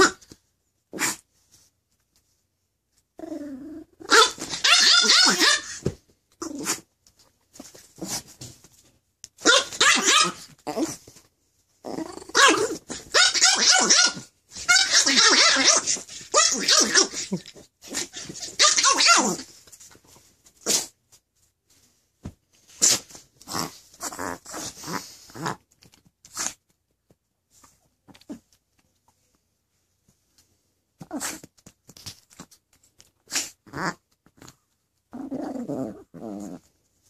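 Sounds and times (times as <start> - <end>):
small dog growling and snarling: 3.2 - 5.8, 6.4 - 6.9, 9.4 - 11.1, 11.8 - 14.0, 14.8 - 19.5, 22.8 - 26.6, 28.1 - 28.5, 31.0 - 31.5, 33.2 - 36.8
small dog barking: 4.0 - 5.8, 9.4 - 10.5.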